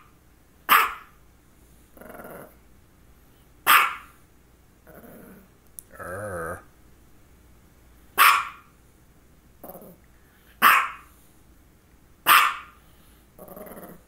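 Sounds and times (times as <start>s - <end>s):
small dog barking: 0.7s - 1.2s, 3.6s - 4.2s, 8.2s - 8.7s, 10.6s - 11.1s, 12.2s - 12.8s.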